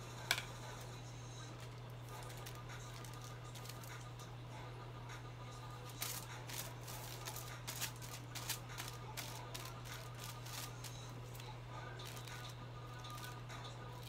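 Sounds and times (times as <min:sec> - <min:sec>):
steady low hum: 0:00.0 - 0:14.0
brush working colour onto foil: 0:01.4 - 0:04.1, 0:05.7 - 0:14.0
foil crinkling and crackling: 0:01.6 - 0:03.9, 0:05.9 - 0:13.4.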